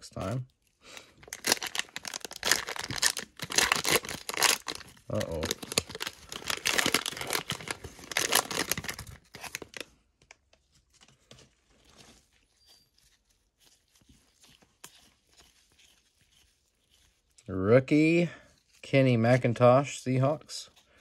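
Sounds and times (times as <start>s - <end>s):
plastic wrapper crinkling and tearing: 0.2s - 17.4s
cards clicking and rustling: 1.3s - 11.5s.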